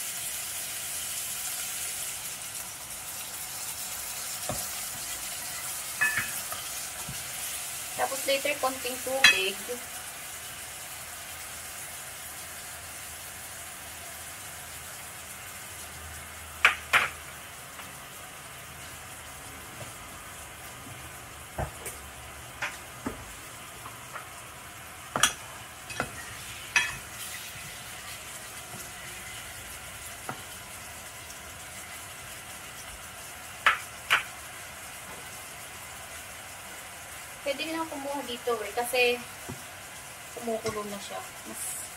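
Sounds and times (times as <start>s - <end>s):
chicken sizzling in a pan: 0.0s - 41.9s
spatula knocking on pan: 25.1s - 27.0s.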